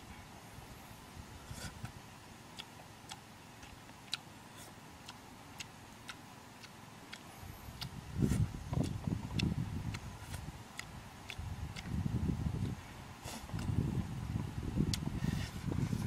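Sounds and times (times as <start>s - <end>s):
mouth and lip clicks chewing: 1.5s - 13.8s, 14.9s - 15.1s.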